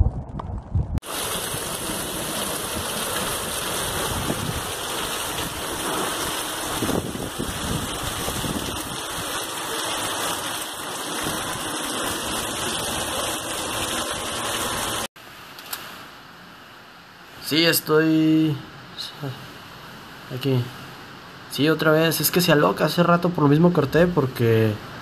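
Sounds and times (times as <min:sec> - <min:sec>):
wind: 0:00.0 - 0:25.0
heavy rain pouring: 0:01.0 - 0:15.1.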